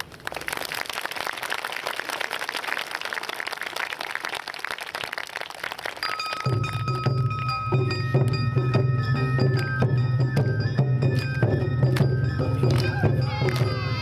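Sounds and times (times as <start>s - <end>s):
crowd applauding: 0.0s - 7.6s, 11.9s - 14.0s.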